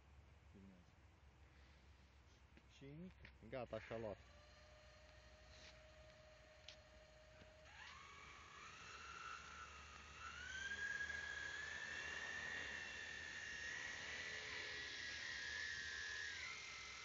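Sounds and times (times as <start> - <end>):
drone propellers whining: 4.2 - 17.0.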